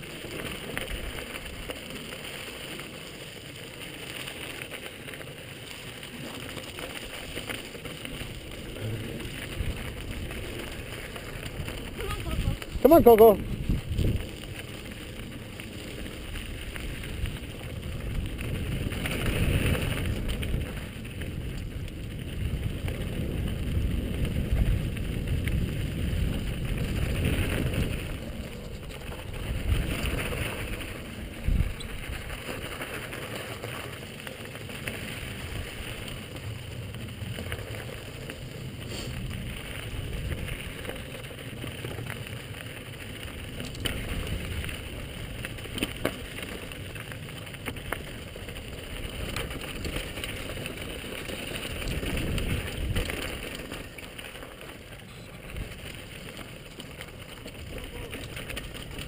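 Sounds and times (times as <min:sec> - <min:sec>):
bike tyres rumbling on gravel: 0:00.0 - 0:59.0
wind buffeting microphone: 0:08.6 - 0:15.2, 0:16.2 - 0:32.7, 0:51.6 - 0:53.5
small clicks and rattles: 0:26.3 - 0:59.0.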